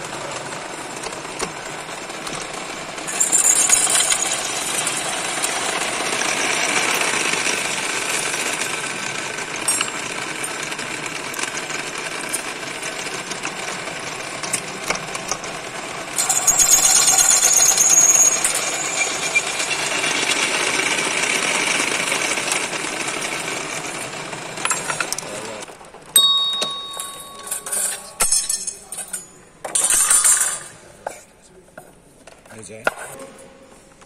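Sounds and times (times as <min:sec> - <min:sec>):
drill bit squealing in metal: 0:16.2 - 0:20.5
metal clanks and rattles: 0:26.4 - 0:31.0.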